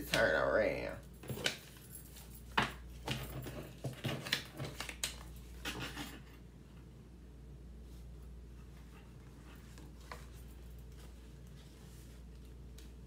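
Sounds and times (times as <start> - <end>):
paper cards shuffling: 3.8 - 6.2.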